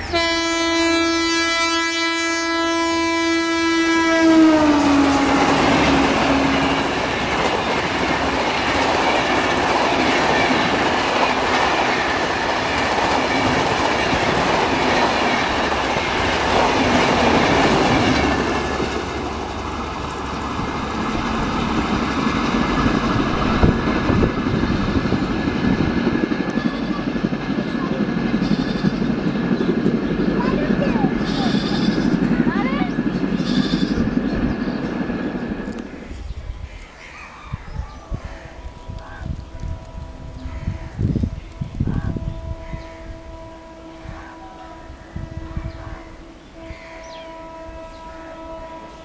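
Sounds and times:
train horn sounding: 0:00.0 - 0:08.9, 0:28.4 - 0:29.2, 0:31.1 - 0:34.2, 0:38.0 - 0:49.0
train coaches clattering past: 0:00.0 - 0:49.0.

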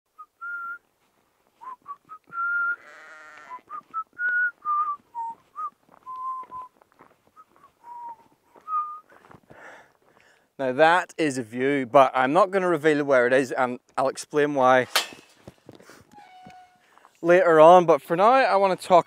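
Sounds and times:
person whistling a tune: 0:01.6 - 0:02.8, 0:03.7 - 0:06.7, 0:07.4 - 0:09.1
sheep bleating: 0:02.7 - 0:03.7.

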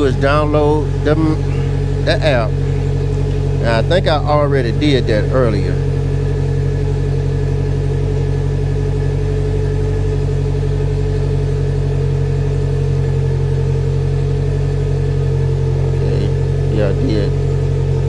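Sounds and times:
engine idling: 0:00.0 - 0:18.0.

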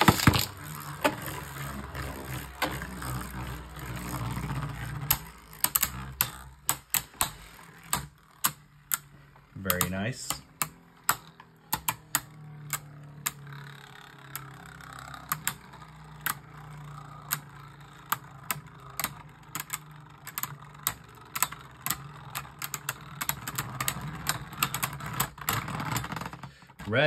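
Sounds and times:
spinning tops clicking hits: 0:00.0 - 0:26.4
spinning tops humming: 0:00.0 - 0:27.0.

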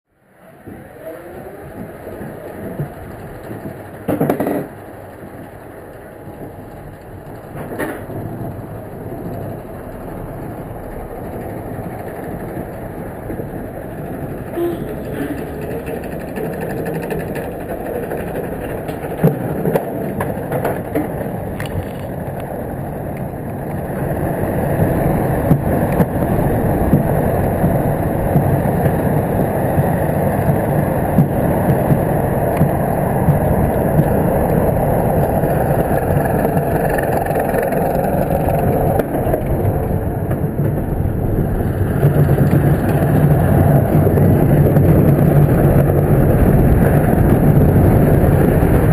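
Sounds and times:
roller coaster rolling on track: 0:00.1 - 0:48.9
lift chain rattling: 0:14.5 - 0:17.0.

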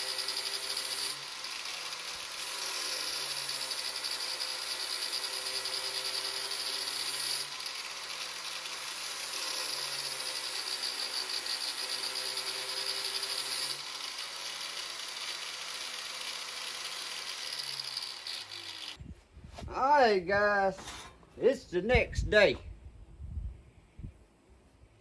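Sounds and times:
angle grinder grinding blade: 0:00.0 - 0:19.0
grinder motor running free: 0:00.0 - 0:19.0.

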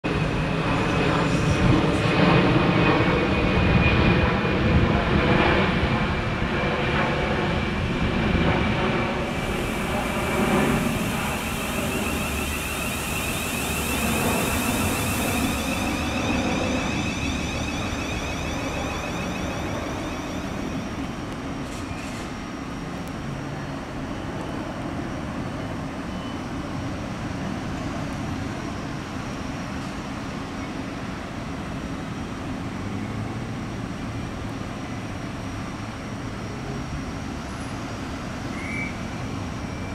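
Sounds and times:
train wheel and running noise: 0:00.1 - 0:39.9
traction motor whine: 0:09.1 - 0:21.5
high hiss: 0:09.1 - 0:22.6.

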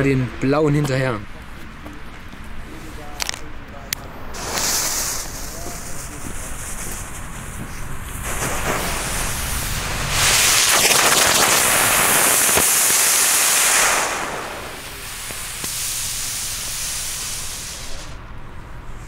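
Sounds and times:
smoke firework hissing: 0:04.1 - 0:18.2.

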